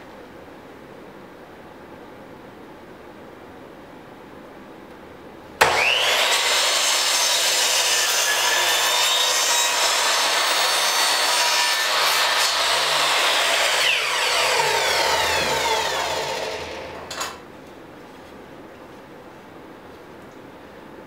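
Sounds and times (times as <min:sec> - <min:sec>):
miter saw whining and cutting wood: 0:05.6 - 0:17.4.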